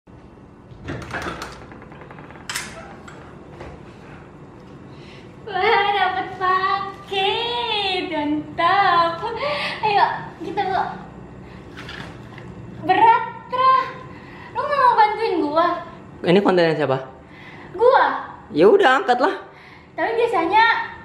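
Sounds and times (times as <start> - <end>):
knocks and rustles: 0.7 - 4.3.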